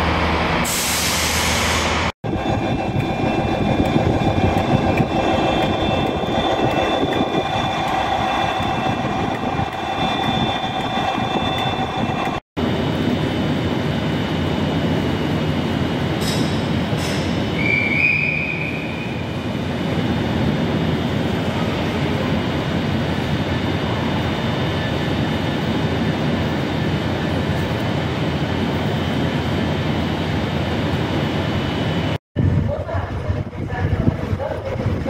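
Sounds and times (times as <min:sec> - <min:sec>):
high squeal: 0:00.7 - 0:12.4, 0:16.3 - 0:19.3
electric train running noise: 0:01.8 - 0:32.2.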